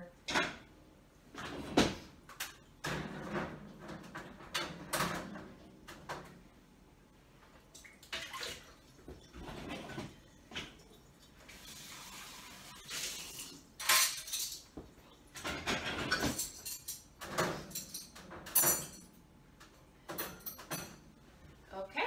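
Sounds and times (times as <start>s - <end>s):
dishes and cutlery clattering: 13.3s - 21.1s.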